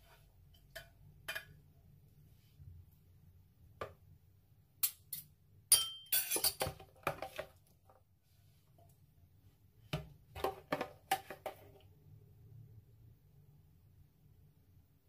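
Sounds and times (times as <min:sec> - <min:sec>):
metal spoon clinking on bowl: 0:05.7 - 0:06.7.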